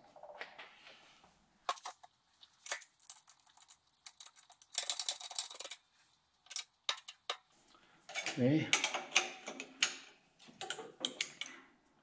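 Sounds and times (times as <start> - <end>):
metal parts clicking and rattling: 1.7 - 5.8, 6.4 - 7.4.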